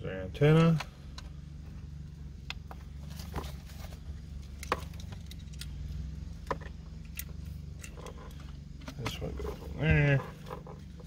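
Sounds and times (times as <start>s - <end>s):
low steady hum: 0.0s - 11.0s
sharp clicks and rattles: 2.4s - 11.0s.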